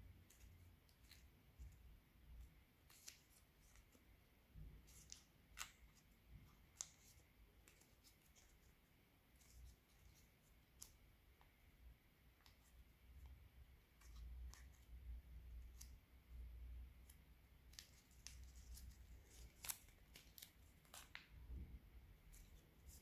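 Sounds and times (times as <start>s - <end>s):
paper crinkling: 17.0s - 21.4s.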